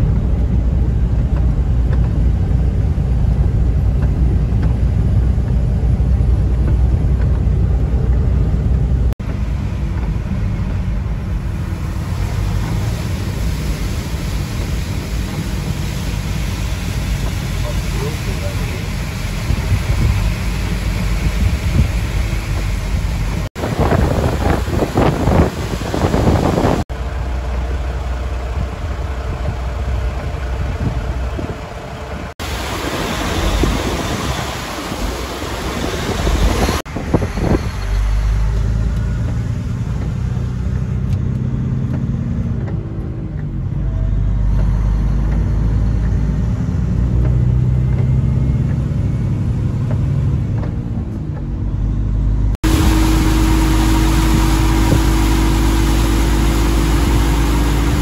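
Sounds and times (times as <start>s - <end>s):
truck engine drone: 0.0s - 58.0s
rushing water: 9.2s - 28.3s, 28.9s - 39.4s, 52.6s - 58.0s
wind noise: 18.9s - 26.9s, 28.4s - 58.0s.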